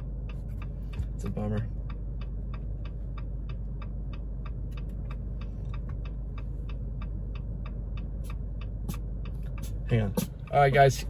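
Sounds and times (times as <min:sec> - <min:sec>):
low cabin hum: 0:00.0 - 0:11.0
turn signal ticking: 0:00.0 - 0:11.0.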